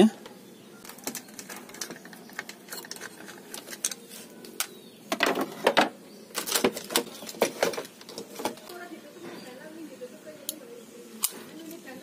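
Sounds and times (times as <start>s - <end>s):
plastic parts clicking and clacking: 0.8s - 8.8s.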